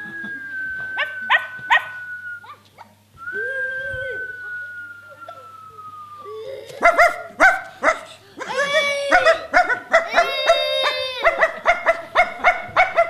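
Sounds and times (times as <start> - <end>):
dog yelping: 1.0 - 2.0, 6.8 - 13.0
dog howling: 8.5 - 13.0.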